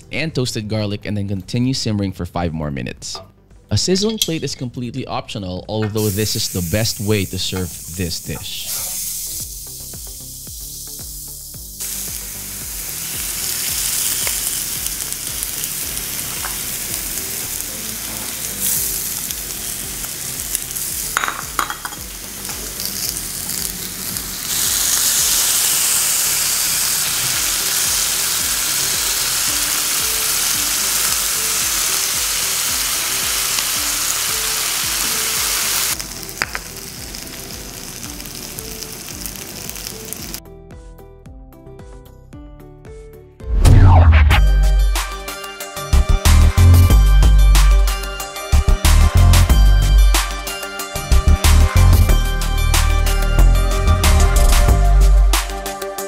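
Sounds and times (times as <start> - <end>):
meat sizzling on hot plate: 6.0 - 40.4.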